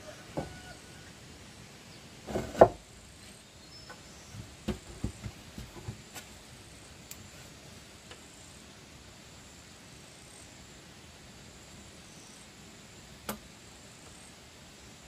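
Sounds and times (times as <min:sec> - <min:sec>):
wooden boards knocking: 0:02.3 - 0:02.8, 0:04.4 - 0:06.0.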